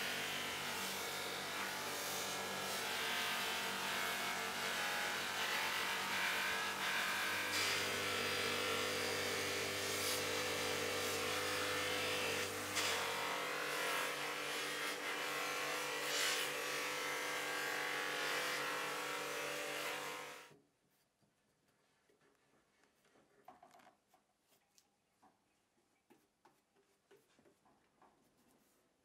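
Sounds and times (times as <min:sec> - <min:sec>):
bench grinder motor whir: 0:00.0 - 0:20.5.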